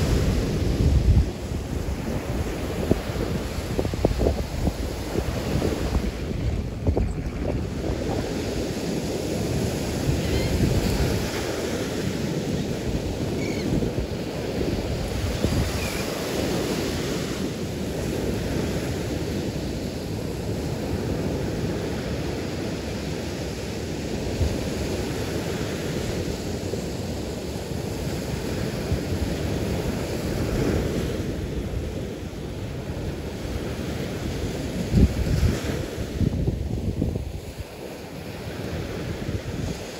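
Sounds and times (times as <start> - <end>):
wind buffeting microphone: 0.0 - 19.6, 27.9 - 39.9
surf breaking on beach: 0.0 - 23.6.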